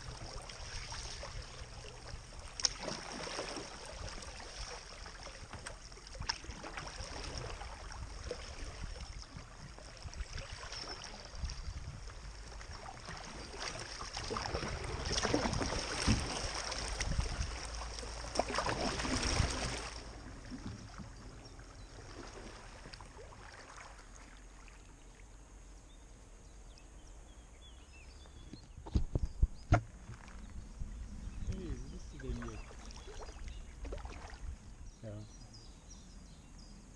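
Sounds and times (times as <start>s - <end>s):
river water rushing and splashing: 12.3s - 20.3s.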